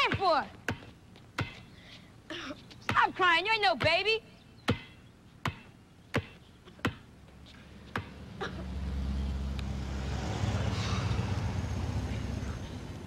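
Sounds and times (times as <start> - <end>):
basketball bouncing on asphalt: 0.0 - 1.7, 2.8 - 4.1, 4.7 - 7.1, 7.9 - 8.2
vehicle engine rumble: 7.3 - 13.0.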